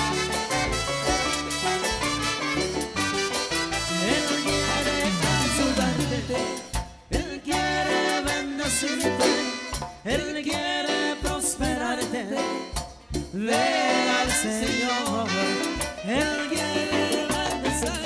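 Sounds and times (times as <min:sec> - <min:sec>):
latin dance band music: 0:00.0 - 0:18.0
voices singing: 0:03.9 - 0:12.6, 0:13.4 - 0:18.0.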